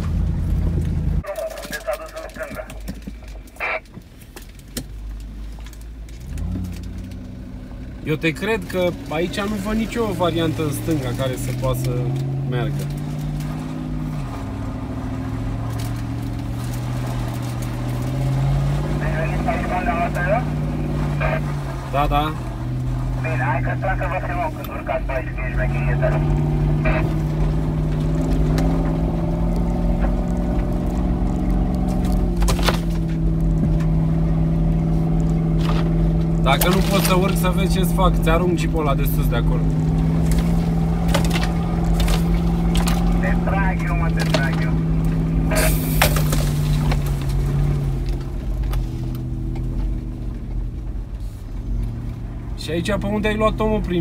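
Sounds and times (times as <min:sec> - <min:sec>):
truck engine pulling under load: 0:05.0 - 0:52.6
knocks and rattles from rough ground: 0:27.6 - 0:34.1.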